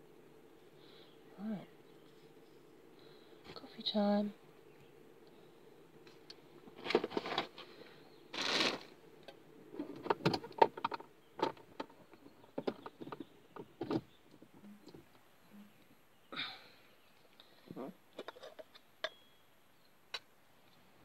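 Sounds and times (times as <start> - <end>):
rustling: 6.0 - 15.2.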